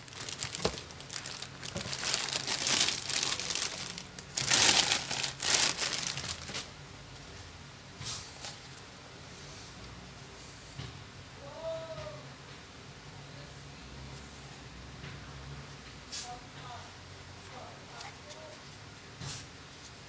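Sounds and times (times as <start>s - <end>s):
plastic bag crinkling: 0.0s - 6.7s.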